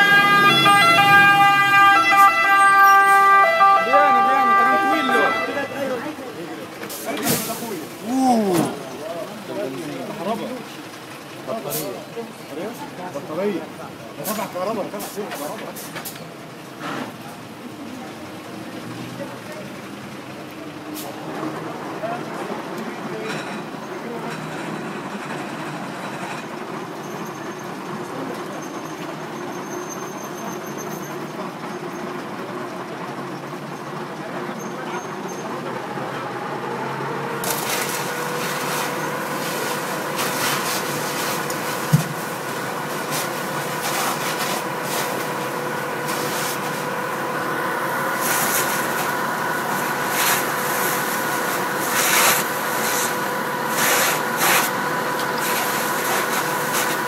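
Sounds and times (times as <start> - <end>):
low engine rumble: 4.0 - 57.0
water jet hissing and crackling: 6.8 - 8.1, 37.4 - 47.3, 47.9 - 57.0.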